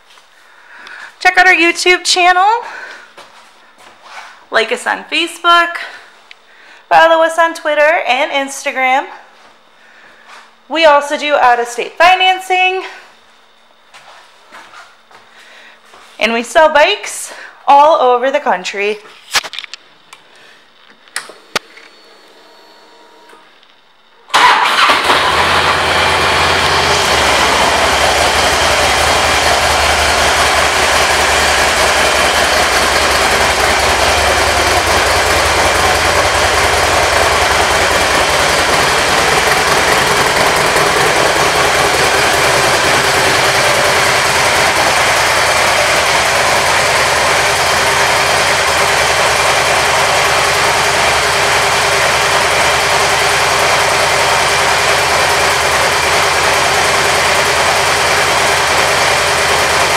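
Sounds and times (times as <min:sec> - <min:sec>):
motorcycle engine starting and idling: 0:24.2 - 0:59.9.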